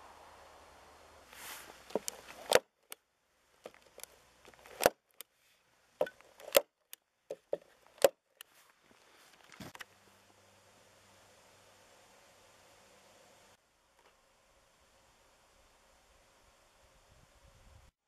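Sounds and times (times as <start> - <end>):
staple gun snapping: 1.9 - 2.7, 3.7 - 5.0, 6.0 - 6.7, 7.3 - 8.2.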